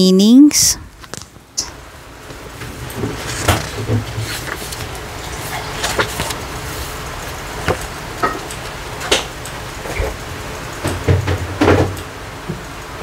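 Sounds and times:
book pages rustling: 3.0s - 7.0s.

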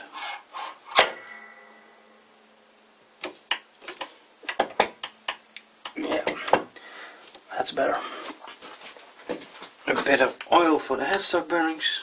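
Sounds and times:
metallic clank ringing: 0.9s - 2.3s.

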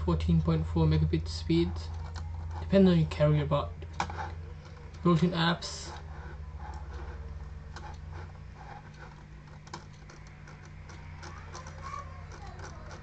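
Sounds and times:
low electrical hum: 0.0s - 13.0s
computer mouse clicking: 5.9s - 13.0s.

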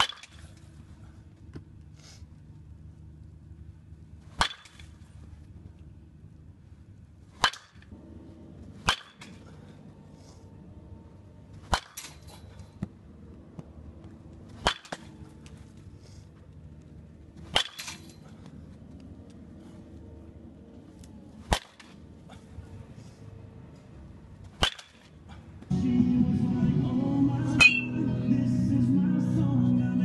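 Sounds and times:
baseball bat hitting balls: 0.0s - 1.9s, 3.6s - 6.0s, 7.0s - 25.8s, 27.6s - 27.9s.

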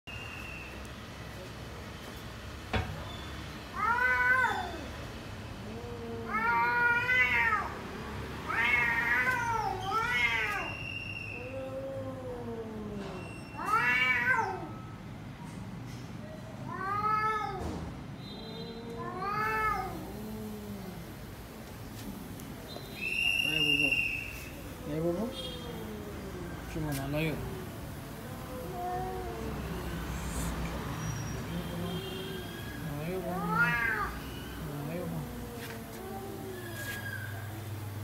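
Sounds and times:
cat meowing: 5.6s - 7.8s, 8.5s - 10.8s, 11.4s - 14.9s, 18.7s - 21.1s, 25.5s - 30.5s, 31.7s - 37.6s.

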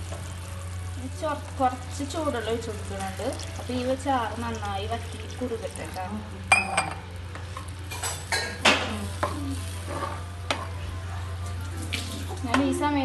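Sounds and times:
metal spoon scraping a pot: 9.2s - 10.7s.

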